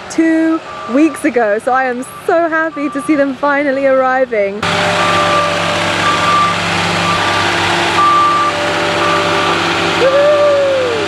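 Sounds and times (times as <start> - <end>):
forklift engine running: 0.0 - 11.0
backup alarm beeping: 0.6 - 3.3, 4.6 - 9.6
rising and sinking whine: 4.6 - 11.0.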